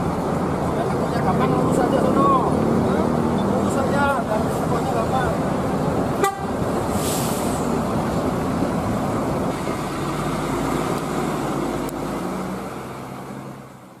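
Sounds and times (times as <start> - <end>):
bus engines rumbling past: 0.0 - 14.0
road noise: 0.0 - 14.0
air brake hiss: 6.9 - 7.8.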